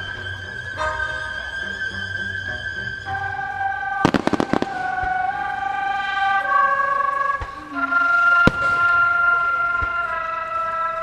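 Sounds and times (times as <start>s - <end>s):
music with long melody notes: 0.0s - 11.0s
firework bangs: 4.0s - 10.9s.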